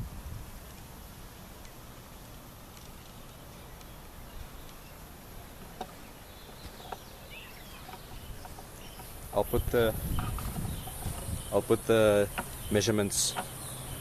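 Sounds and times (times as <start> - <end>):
low rumble and hiss: 0.0 - 14.0
faint bird chirps: 2.9 - 14.0.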